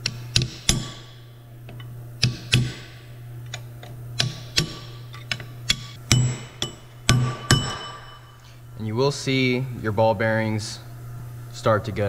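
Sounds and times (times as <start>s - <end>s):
hammer tapping metal punch: 0.0s - 1.1s, 1.7s - 2.9s, 4.2s - 8.4s.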